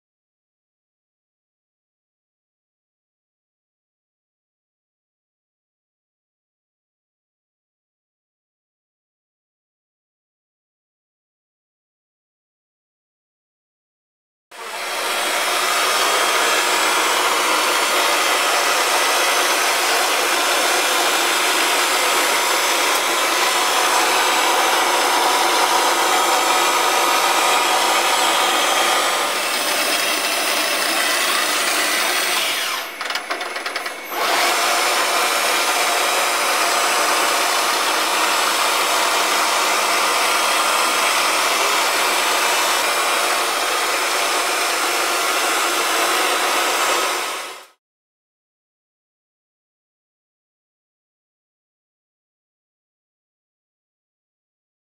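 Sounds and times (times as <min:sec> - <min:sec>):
milling machine whirring: 0:14.6 - 0:47.7.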